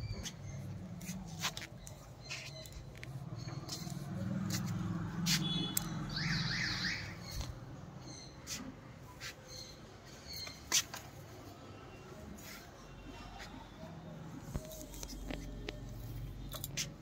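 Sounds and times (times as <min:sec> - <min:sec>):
bird chirps: 0:05.4 - 0:08.6.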